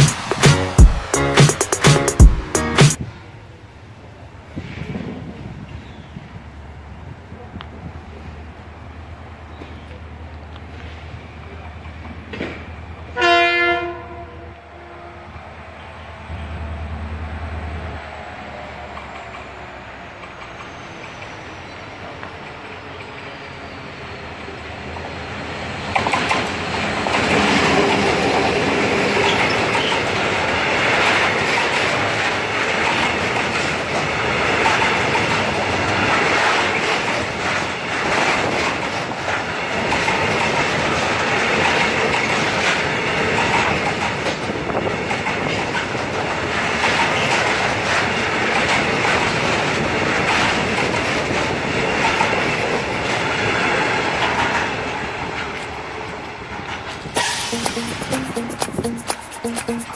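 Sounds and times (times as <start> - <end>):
diesel locomotive passing: 0.0 - 1.8, 3.0 - 57.9
wheels clicking over rail joints: 29.1 - 57.4.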